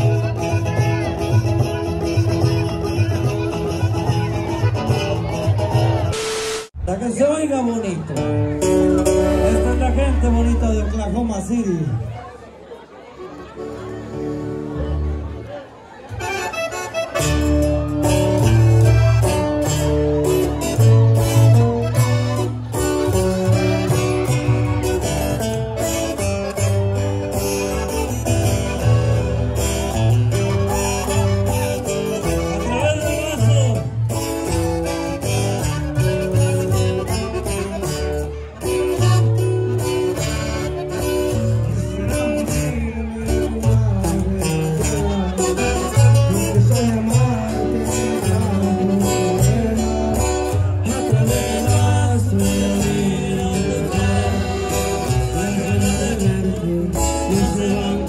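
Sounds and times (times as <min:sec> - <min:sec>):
guitar: 0:00.0 - 0:58.0
person singing: 0:41.6 - 0:58.0.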